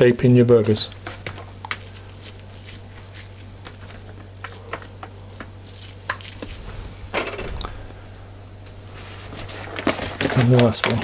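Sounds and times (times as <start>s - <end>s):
low steady hum: 0.0s - 11.0s
minced meat squishing: 0.5s - 6.7s.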